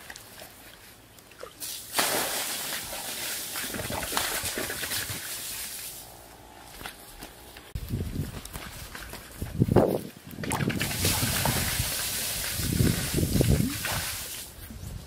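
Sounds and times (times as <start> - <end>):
water splashing onto pool floor: 1.2 - 6.0, 10.4 - 14.5.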